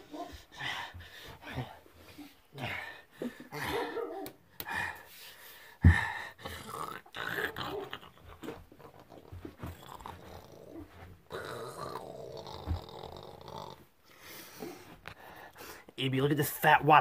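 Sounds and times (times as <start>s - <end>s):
man growling like a dog: 2.5s - 4.1s, 5.9s - 13.9s.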